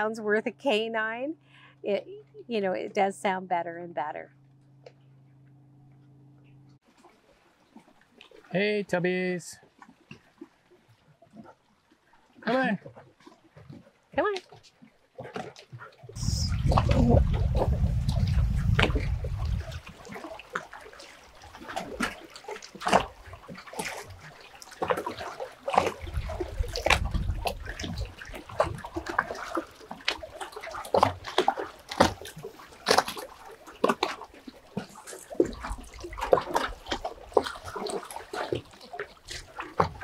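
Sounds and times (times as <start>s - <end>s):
dogs splashing in water: 12.8s - 40.0s.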